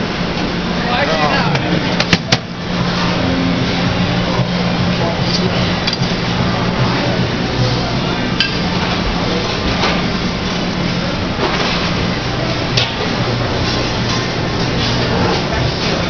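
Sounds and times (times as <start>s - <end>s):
dining room background noise: 0.7s - 16.0s
dishes clinking: 8.4s - 10.0s.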